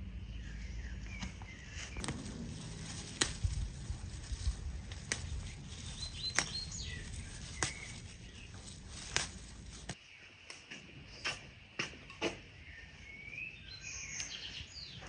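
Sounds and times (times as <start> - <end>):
leaves rustling: 0.4 - 10.1
herb stems snapping: 1.1 - 10.6, 14.1 - 14.4.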